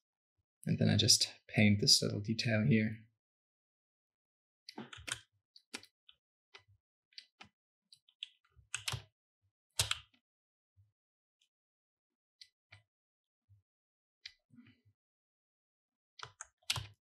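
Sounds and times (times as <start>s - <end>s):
computer keyboard clicking: 4.8s - 5.2s, 8.8s - 9.0s, 9.8s - 10.0s, 16.2s - 17.0s.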